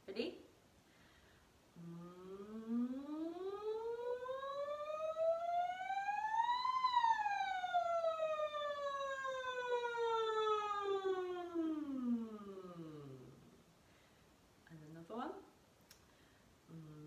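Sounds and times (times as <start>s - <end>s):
woman singing vocal siren glide: 1.8s - 13.7s.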